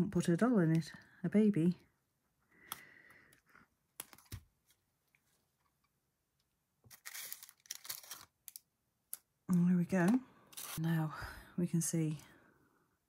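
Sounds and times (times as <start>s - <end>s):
lace tearing and rustling: 6.9s - 9.2s, 10.5s - 10.8s.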